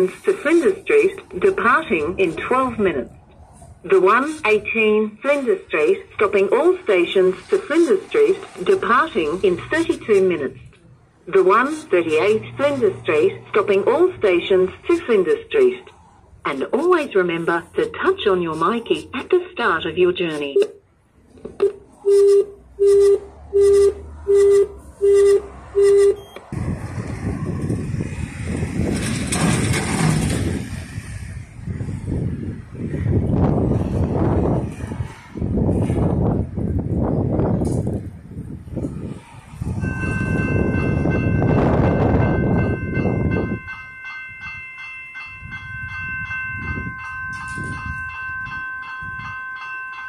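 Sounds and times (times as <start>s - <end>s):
intercom speaker beeping: 0.0s - 3.1s, 3.9s - 10.7s, 11.3s - 15.8s, 16.5s - 20.8s, 21.6s - 26.4s
level crossing bell ringing: 22.0s - 26.4s, 39.8s - 50.0s
loud rumbling: 26.5s - 34.7s
rushing wind noise: 26.5s - 49.5s.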